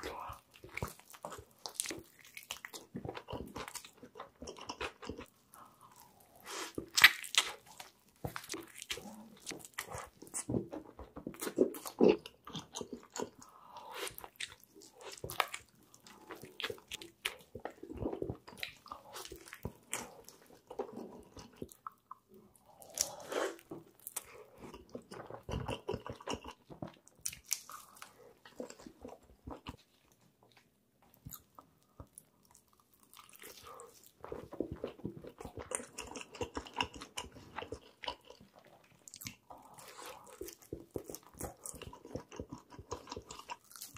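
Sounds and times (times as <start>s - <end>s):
crunching fried chicken: 34.8s - 43.9s.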